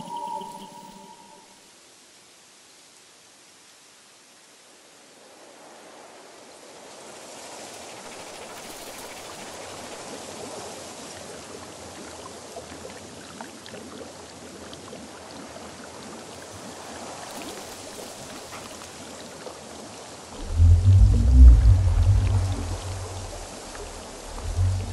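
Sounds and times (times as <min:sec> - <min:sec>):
watery noise with crackles: 0:05.2 - 0:24.9.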